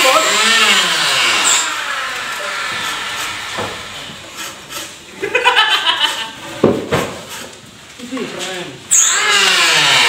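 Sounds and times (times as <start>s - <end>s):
sharp wooden knocks: 6.6s - 7.4s.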